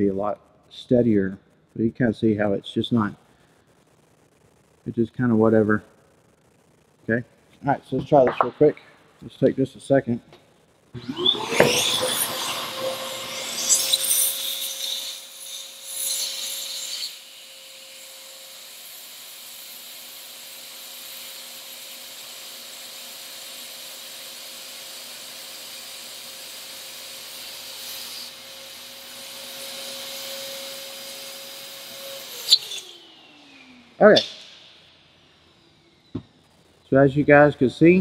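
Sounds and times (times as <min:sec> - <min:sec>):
gyro whine: 0:00.7 - 0:14.9.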